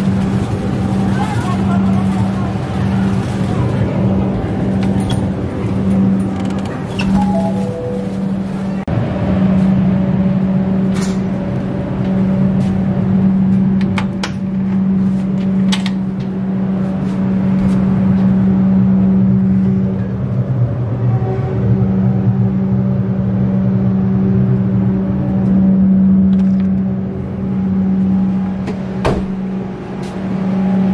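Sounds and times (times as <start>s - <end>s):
electric train hum: 0.0s - 30.9s
sharp rattles and clicks: 4.8s - 7.5s.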